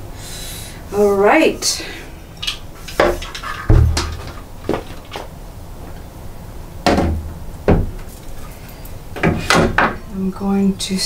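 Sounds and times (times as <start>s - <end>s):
heavy low thud: 3.7s - 4.4s
knocks and clunks of panel: 6.8s - 8.0s.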